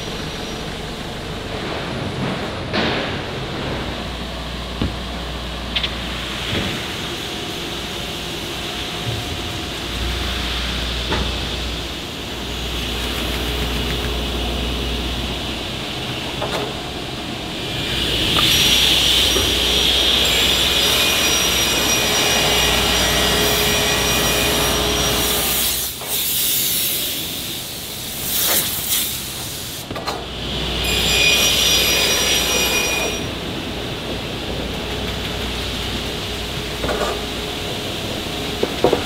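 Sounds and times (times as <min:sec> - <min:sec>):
machine running noise: 0:00.0 - 0:39.0
saw blade high whine: 0:17.7 - 0:25.9, 0:30.6 - 0:33.4.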